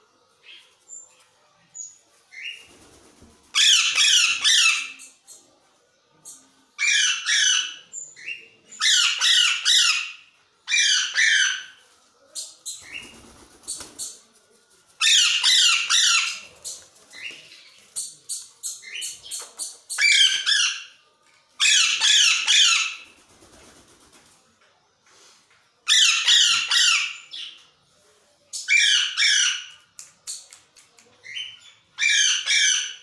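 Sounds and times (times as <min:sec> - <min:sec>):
parakeets screeching: 0:03.6 - 0:05.1, 0:08.8 - 0:11.8, 0:21.6 - 0:23.0.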